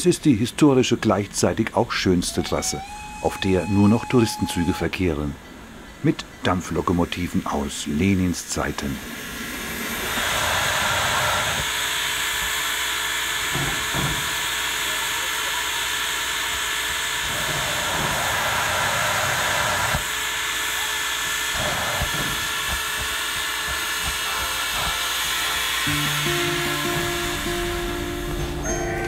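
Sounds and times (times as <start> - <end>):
steam locomotive venting steam: 0.0 - 29.0
music: 24.3 - 29.0.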